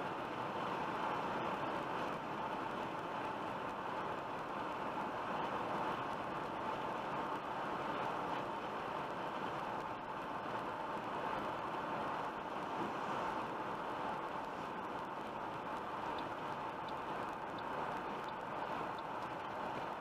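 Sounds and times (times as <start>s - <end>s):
car road noise from inside cabin: 0.0s - 20.0s.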